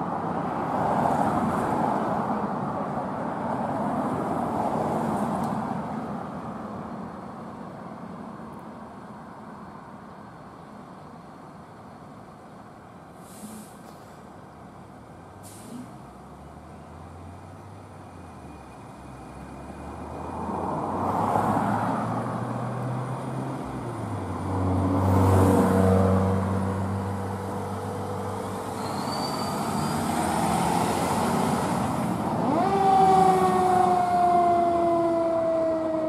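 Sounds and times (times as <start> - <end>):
diesel engine revving: 29.5 - 35.2
fire engine siren: 32.2 - 36.0.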